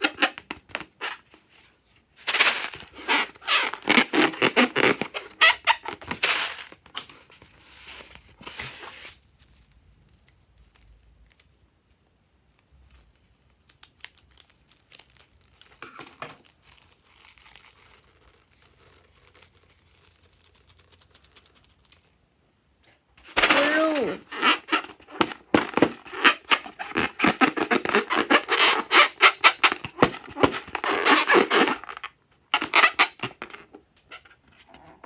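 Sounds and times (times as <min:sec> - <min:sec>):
rubber balloon squeaking: 0:00.0 - 0:01.3, 0:02.3 - 0:06.8, 0:23.2 - 0:34.3
scissors cutting balloon: 0:02.4 - 0:06.7, 0:23.2 - 0:33.6.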